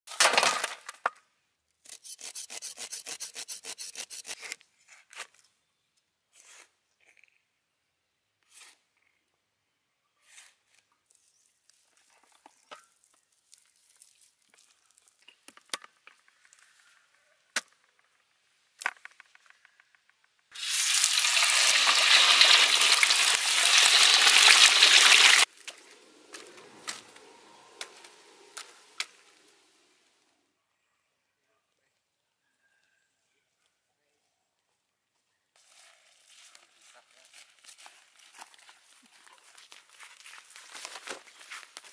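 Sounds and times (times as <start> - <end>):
fish sizzling in hot oil: 20.5 - 25.5.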